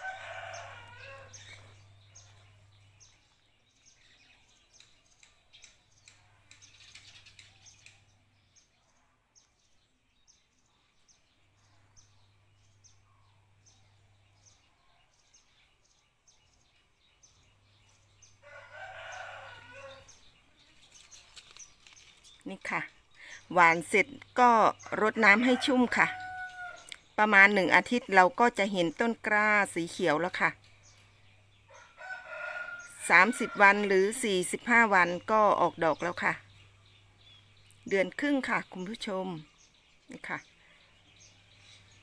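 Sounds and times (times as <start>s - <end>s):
faint rooster crow: 0.0s - 2.3s, 18.4s - 20.3s, 24.9s - 26.9s, 31.7s - 34.2s.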